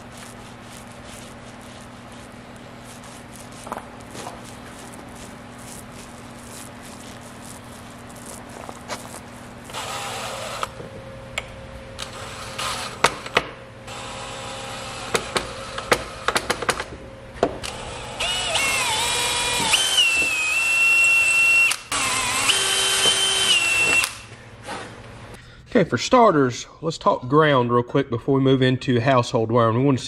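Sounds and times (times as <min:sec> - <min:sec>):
cordless drill whining: 0:02.9 - 0:10.8, 0:12.0 - 0:16.0, 0:17.6 - 0:24.4.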